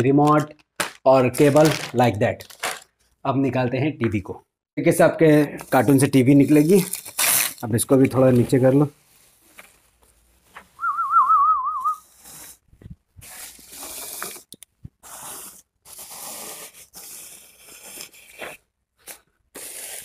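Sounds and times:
packaging rustling and crinkling: 0.2 - 3.0
warbling whistle: 10.8 - 12.0.

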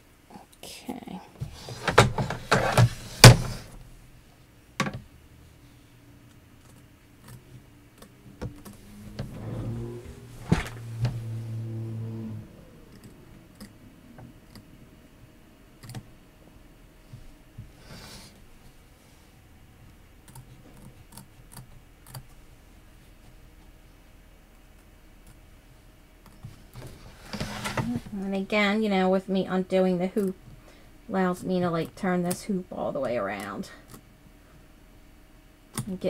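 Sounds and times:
low hum: 5.1 - 21.6.

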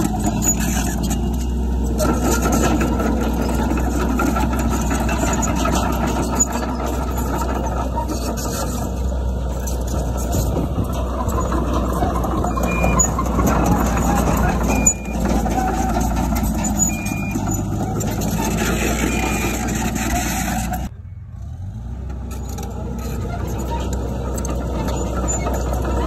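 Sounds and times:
heavy diesel engine running: 0.0 - 26.0.

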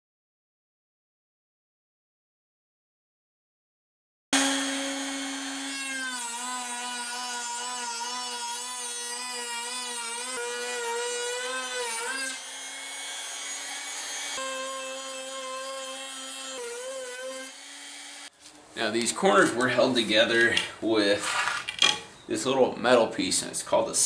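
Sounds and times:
router motor whine cutting wood: 4.4 - 18.3.

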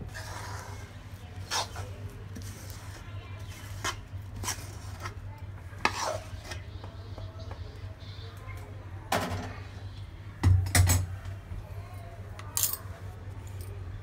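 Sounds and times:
metal spoon scraping pan: 0.1 - 5.2, 5.8 - 6.7.

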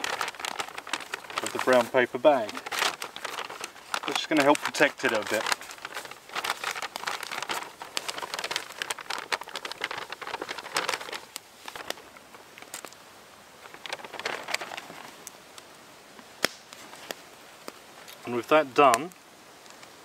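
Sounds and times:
paper bag rustling and crinkling: 0.0 - 15.4.

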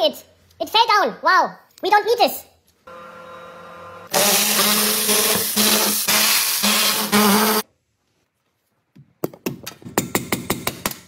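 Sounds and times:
power tool running: 2.9 - 7.6.

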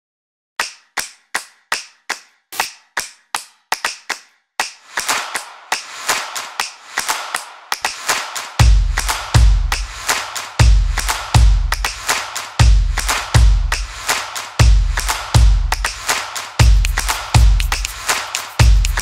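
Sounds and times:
sharp percussive hits: 1.7 - 3.1, 3.7 - 19.0.

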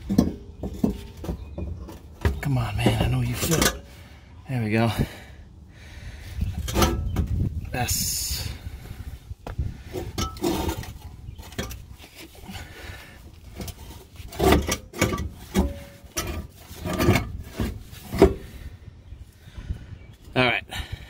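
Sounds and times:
metal scraping and knocking: 0.0 - 3.9, 6.4 - 8.5, 9.8 - 18.6.

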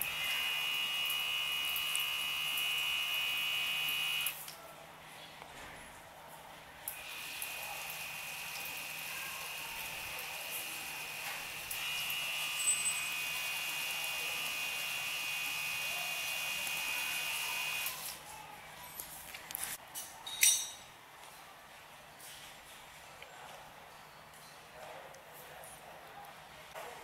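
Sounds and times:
electric water pump whining: 0.0 - 4.4, 6.9 - 18.2.

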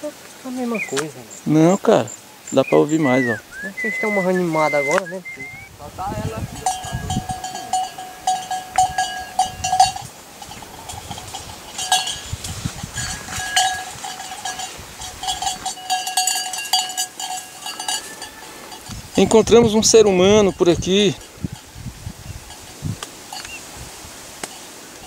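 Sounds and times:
goat bell clanking: 6.2 - 21.8, 22.4 - 23.5.

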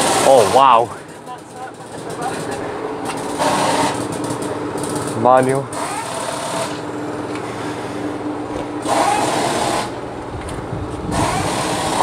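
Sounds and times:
noisy burst: 0.0 - 6.9, 10.8 - 12.0
motor humming: 0.0 - 12.0.

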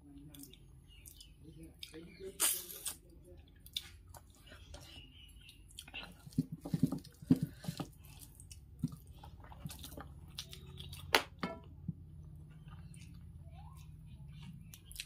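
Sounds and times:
wet squishes of rice: 0.0 - 11.2
chewing: 0.2 - 11.1, 12.2 - 15.0.

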